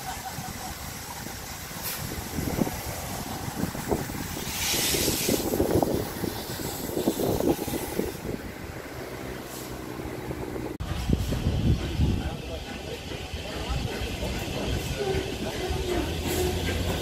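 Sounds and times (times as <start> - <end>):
steam hiss: 0.0 - 17.0
steam locomotive rumbling and clanking: 0.0 - 17.0.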